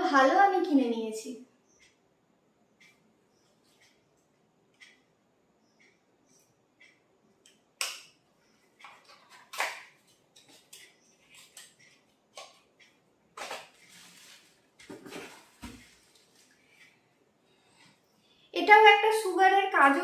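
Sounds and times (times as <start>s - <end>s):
rustling in cardboard box: 13.8s - 16.5s.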